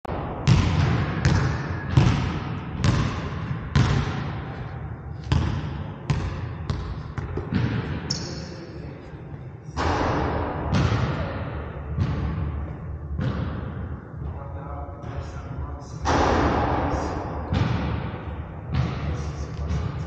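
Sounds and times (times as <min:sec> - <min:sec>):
basketball bouncing on hardwood: 0:00.4 - 0:04.2, 0:05.3 - 0:07.9.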